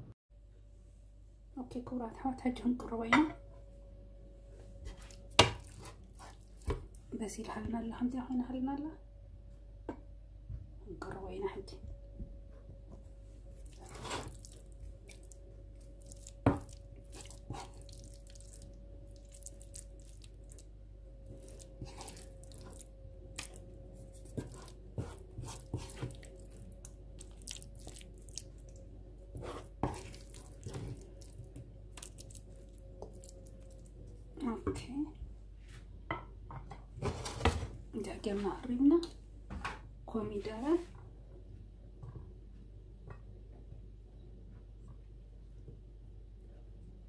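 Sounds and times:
faint steady hum: 0.0s - 47.0s
spoon scraping food onto plate: 29.3s - 31.0s.

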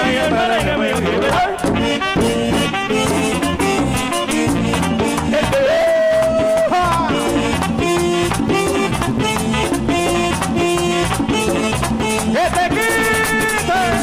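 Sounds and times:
button accordion: 0.0s - 14.0s
fast percussion: 0.0s - 14.0s.

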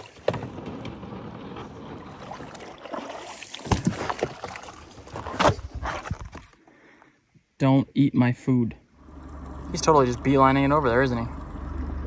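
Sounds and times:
gear knocking and clunking in boat: 0.0s - 2.6s.

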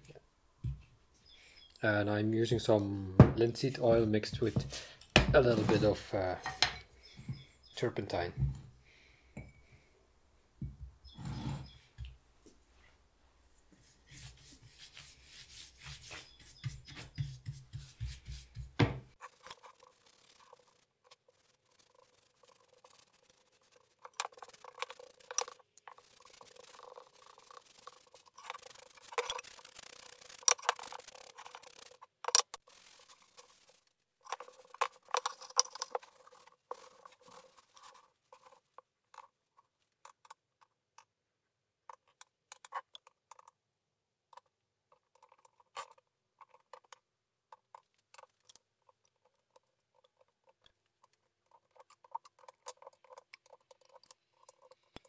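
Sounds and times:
cloth rubbing wooden board: 13.8s - 38.6s
brush on wooden board: 13.8s - 39.7s.

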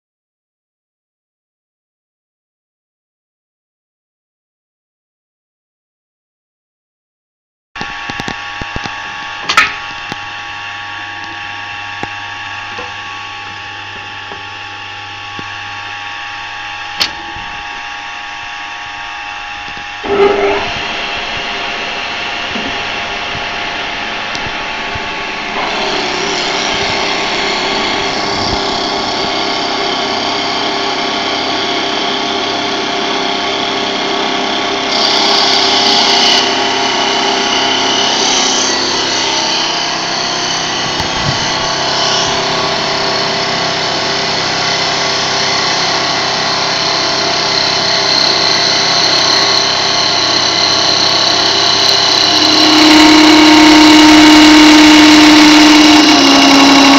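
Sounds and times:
lathe machine hum: 7.8s - 56.9s
wood being shaved: 20.0s - 31.3s, 33.0s - 56.9s.

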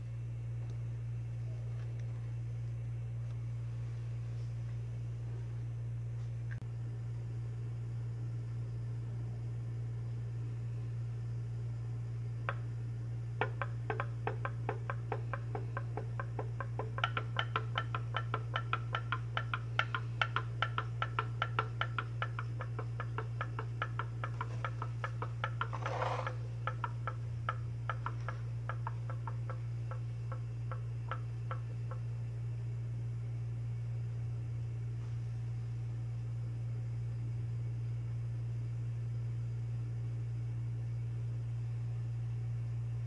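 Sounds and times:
pop-pop steam engine popping: 13.4s - 32.0s.

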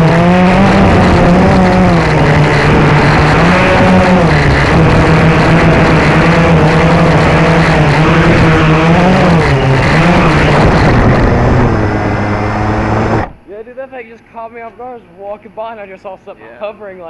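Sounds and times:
quadcopter motors humming: 0.0s - 13.5s.

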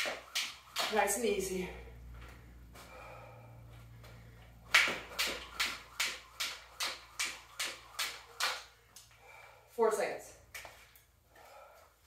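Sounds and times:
skipping rope slapping floor: 0.0s - 1.6s, 4.0s - 9.2s, 10.5s - 11.1s.

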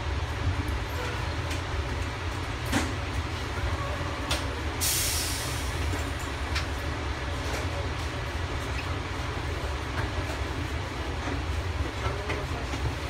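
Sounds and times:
train car low rumble: 0.0s - 13.0s
short hiss: 4.8s - 5.7s.

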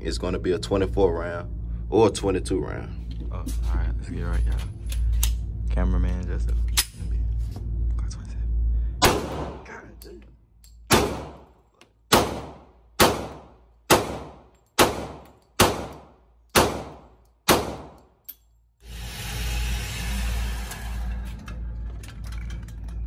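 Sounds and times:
pistol shots indoors: 9.0s - 9.7s, 10.7s - 18.4s.

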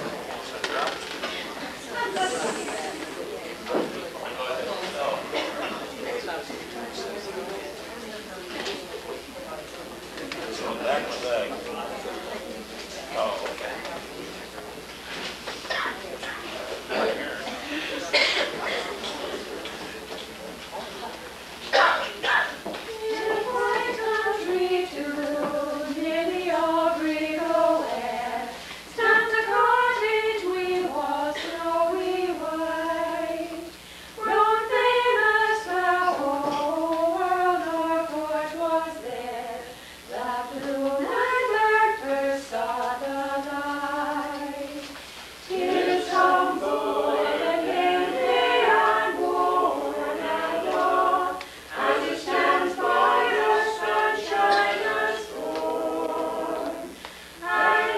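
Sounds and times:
group singing unaccompanied: 1.8s - 3.9s, 21.7s - 57.9s
singers breathing: 33.8s - 34.2s, 39.7s - 40.1s, 51.4s - 51.7s, 56.9s - 57.4s.

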